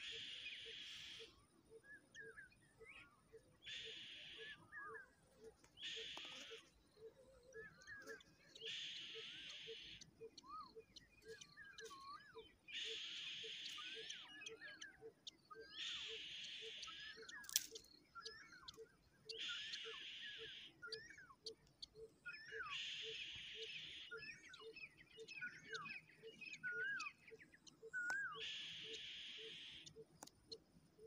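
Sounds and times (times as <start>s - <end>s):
whistled bird calls: 0.0s - 5.2s, 5.8s - 30.0s
soft steady ticking: 20.9s - 22.1s, 29.8s - 31.0s.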